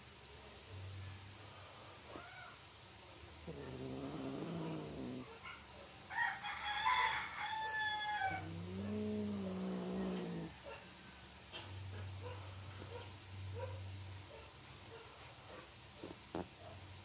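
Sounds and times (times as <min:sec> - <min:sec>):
cats yowling: 0:02.1 - 0:02.6, 0:03.4 - 0:05.4, 0:07.5 - 0:10.7.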